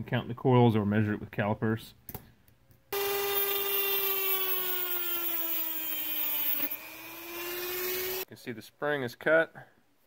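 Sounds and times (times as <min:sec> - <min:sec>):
rotary tool cutting wheel whining: 0:03.0 - 0:08.3.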